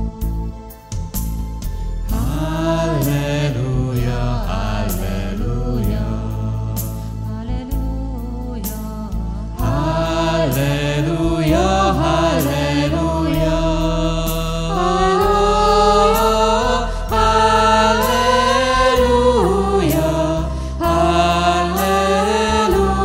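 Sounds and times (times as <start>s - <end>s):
backing music with bass and beat: 0.0s - 7.3s
person singing worship song: 1.8s - 23.0s.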